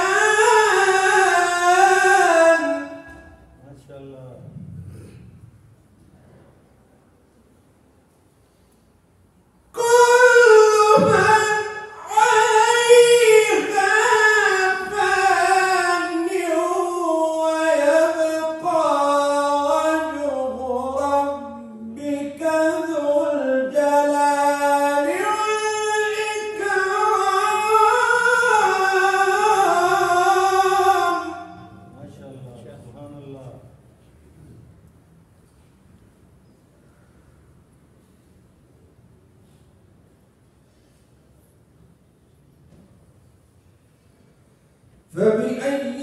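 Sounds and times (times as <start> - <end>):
man chanting melodically: 0.0 - 5.3, 9.7 - 33.9, 45.1 - 46.0.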